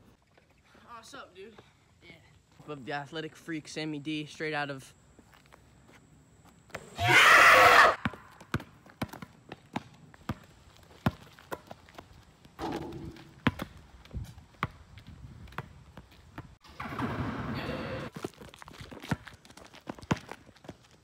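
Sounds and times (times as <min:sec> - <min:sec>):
basketball bouncing on asphalt: 0:07.9 - 0:17.5, 0:18.1 - 0:21.0.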